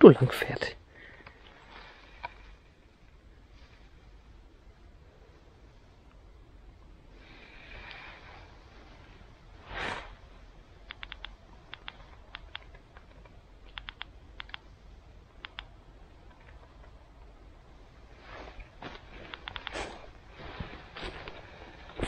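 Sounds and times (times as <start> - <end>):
rustling noise: 1.4 - 4.3, 7.2 - 10.6, 16.2 - 22.0
sharp light clicks: 10.8 - 14.7, 15.4 - 17.0, 19.0 - 19.8.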